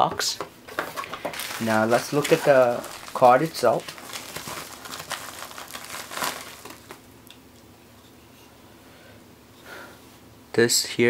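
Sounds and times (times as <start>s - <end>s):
bubble bag crinkling: 1.0s - 7.2s.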